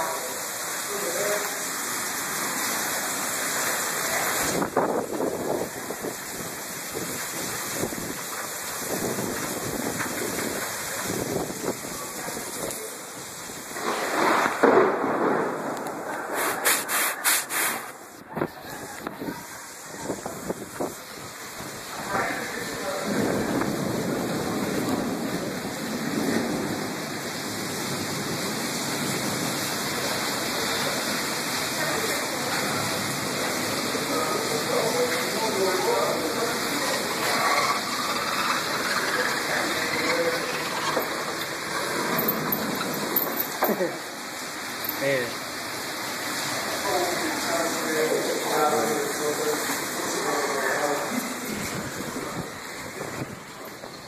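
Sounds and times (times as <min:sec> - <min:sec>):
heavy rain hiss: 0:00.0 - 0:54.0
microphone rubbing rustle: 0:15.8 - 0:19.4
quick scraping strokes: 0:16.1 - 0:18.2.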